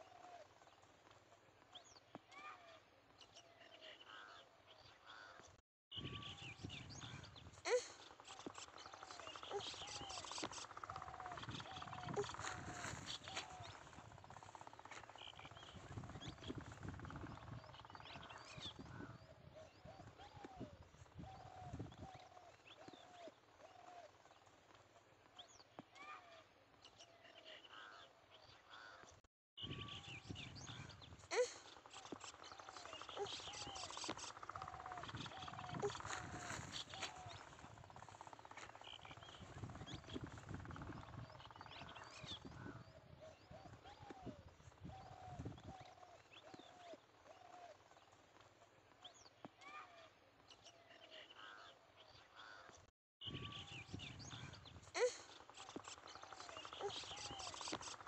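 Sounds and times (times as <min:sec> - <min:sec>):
small birds chirping: 0:00.0 - 0:58.0
wind rumble on microphone: 0:05.9 - 0:07.6, 0:11.0 - 0:14.6, 0:15.4 - 0:22.2, 0:29.6 - 0:31.3, 0:34.6 - 0:38.2, 0:39.0 - 0:45.9, 0:53.2 - 0:55.0.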